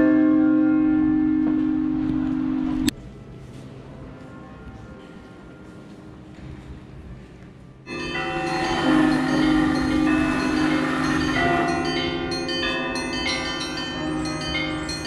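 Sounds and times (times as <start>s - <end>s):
deep bell humming: 0.0s - 2.9s, 7.9s - 15.0s
higher church bells ringing: 0.0s - 2.9s, 7.8s - 15.0s.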